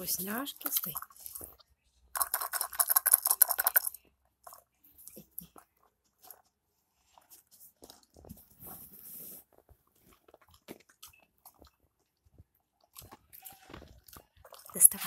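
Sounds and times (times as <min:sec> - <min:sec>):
treats rattling in a rubber toy: 0:00.0 - 0:06.4.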